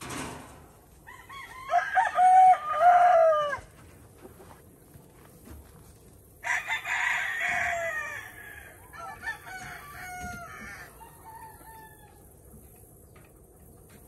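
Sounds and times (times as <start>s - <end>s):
rooster crowing: 1.0s - 3.7s, 6.4s - 12.3s.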